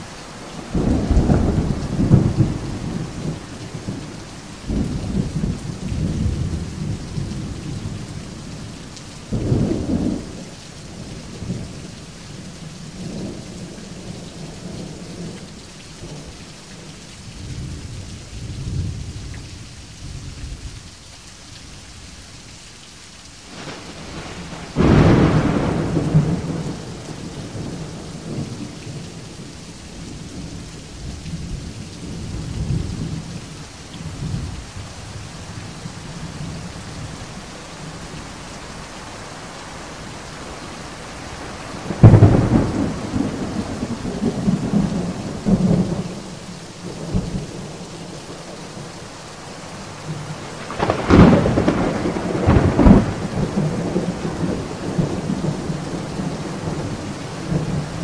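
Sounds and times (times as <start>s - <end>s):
steady rain: 0.0s - 58.0s
sharp thunderclap: 23.5s - 27.7s, 41.9s - 46.1s, 50.7s - 55.6s
rolling thunder: 23.5s - 29.4s, 41.7s - 46.2s, 50.6s - 58.0s.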